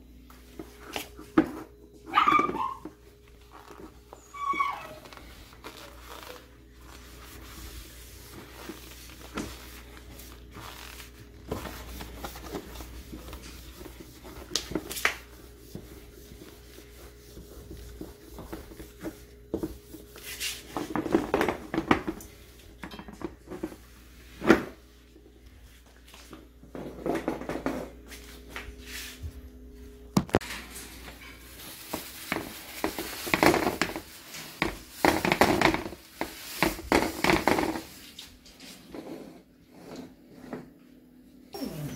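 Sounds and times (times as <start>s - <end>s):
faint steady hum: 0.0s - 34.9s
paper towel wiping tray: 0.3s - 22.7s, 30.7s - 40.4s.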